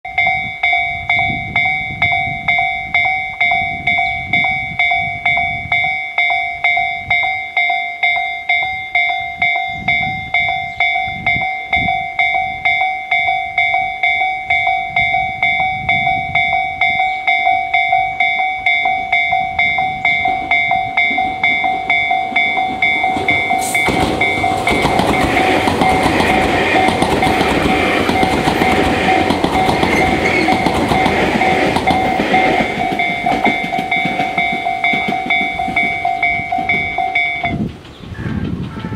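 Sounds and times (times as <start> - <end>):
level crossing warning bell: 0.0 - 37.8
train wheels clattering on rails: 19.2 - 38.9.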